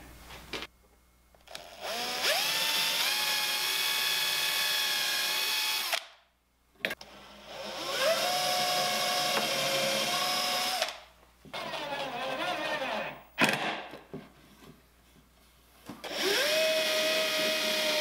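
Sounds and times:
cordless drill running: 1.5s - 6.0s, 7.0s - 11.0s, 16.0s - 18.0s.

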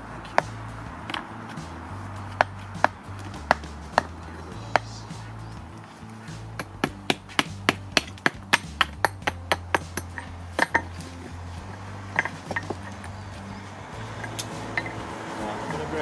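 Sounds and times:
hammer tapping on stone: 6.6s - 10.9s.

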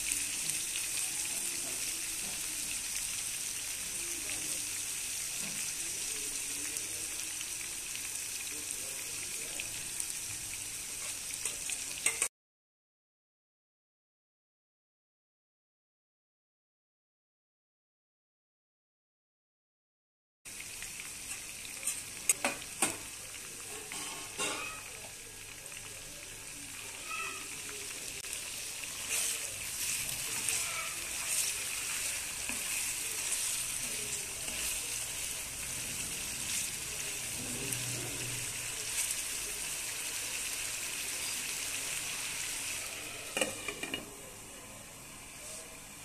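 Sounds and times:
meat sizzling in oil: 0.0s - 12.3s, 20.5s - 46.0s
wooden spatula stirring: 28.4s - 39.4s.

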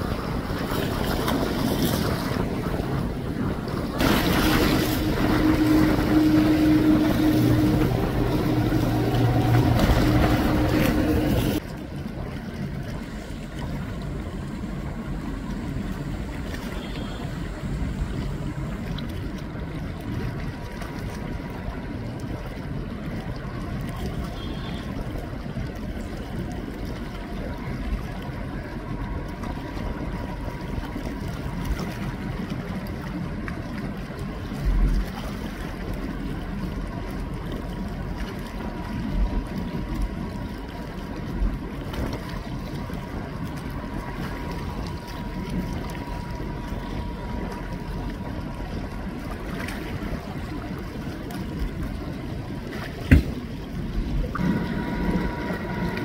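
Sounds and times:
wind buffeting microphone: 0.0s - 16.5s
water washing: 0.0s - 56.0s
faint steady tone: 13.1s - 19.2s, 54.3s - 56.0s.

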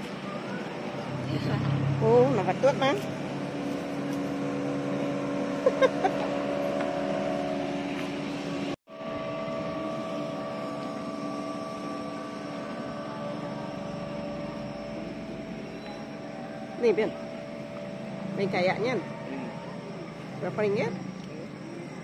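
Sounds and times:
speedboat engine drone: 0.0s - 22.0s.

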